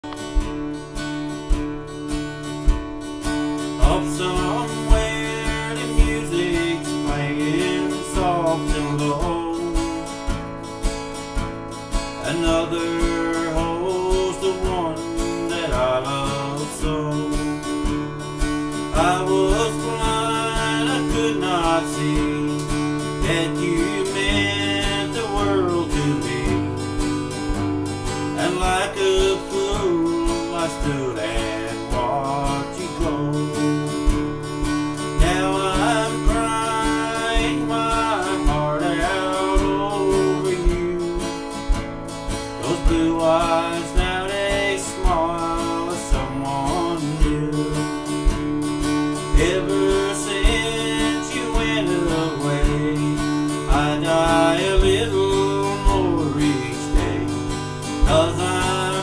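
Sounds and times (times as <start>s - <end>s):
acoustic guitar strumming: 0.0s - 59.0s
sliding guitar melody: 0.0s - 59.0s.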